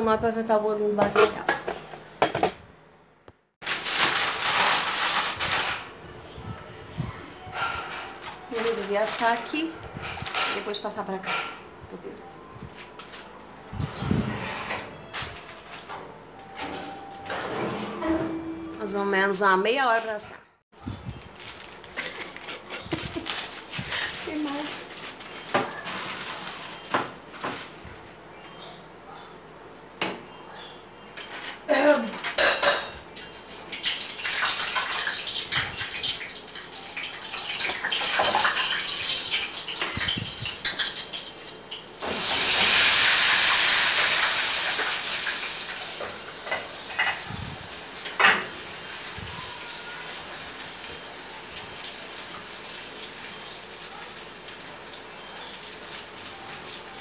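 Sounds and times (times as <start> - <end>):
dishes and utensils clinking: 7.4 - 11.7, 31.1 - 41.4, 46.0 - 47.4
eggs sizzling in frying pan: 33.3 - 57.0.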